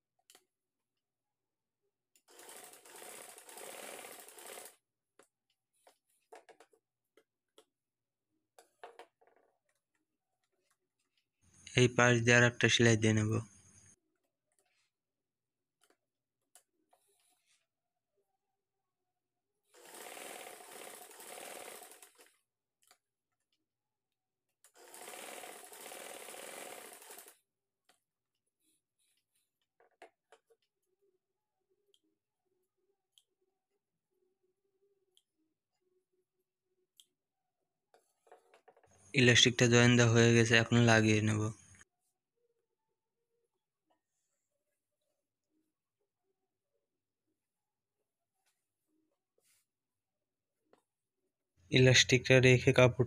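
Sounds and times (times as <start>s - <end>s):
sewing machine running: 2.3s - 4.8s, 19.7s - 22.4s, 24.7s - 27.4s.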